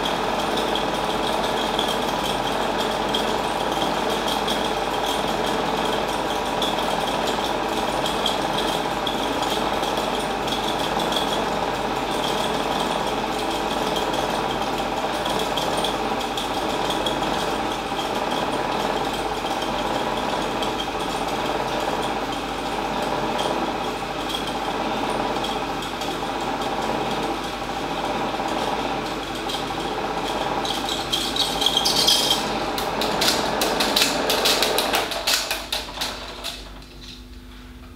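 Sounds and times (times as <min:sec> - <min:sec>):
film projector whirring: 0:00.0 - 0:37.9
rapid clicking clatter: 0:29.1 - 0:37.2.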